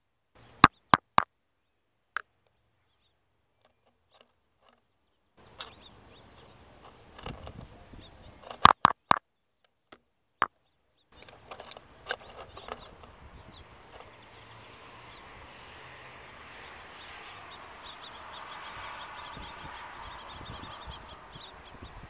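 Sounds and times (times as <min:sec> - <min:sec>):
faint outdoor background: 0:00.0 - 0:22.0
bird pecking on camera housing: 0:05.4 - 0:07.7, 0:08.4 - 0:09.2, 0:11.2 - 0:13.2.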